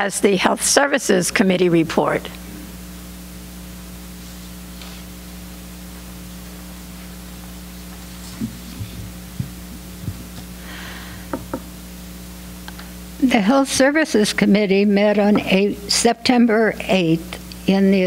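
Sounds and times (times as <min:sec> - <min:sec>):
electrical hum: 0:00.0 - 0:18.0
microphone handling thumps: 0:07.9 - 0:11.8.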